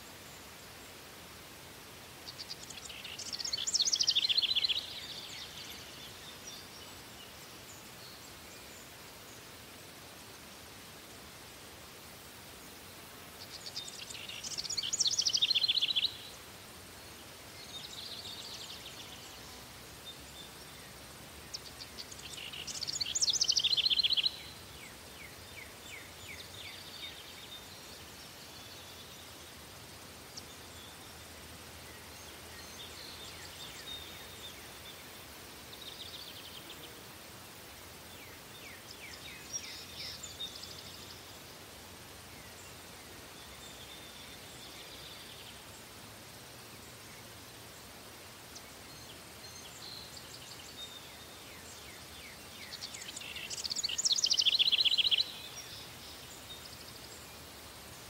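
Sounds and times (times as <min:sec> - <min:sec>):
outdoor background hiss: 0:00.0 - 0:58.0
songbirds trilling: 0:48.2 - 0:58.0.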